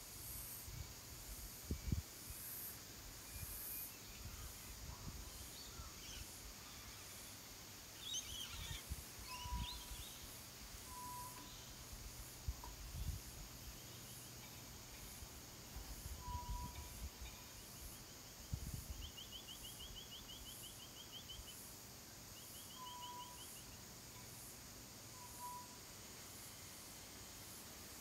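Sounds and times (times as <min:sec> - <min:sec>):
insect buzz: 0:00.0 - 0:28.0
whistled bird notes: 0:08.0 - 0:10.3, 0:10.9 - 0:11.8, 0:16.2 - 0:16.9, 0:22.6 - 0:23.6, 0:25.2 - 0:25.8.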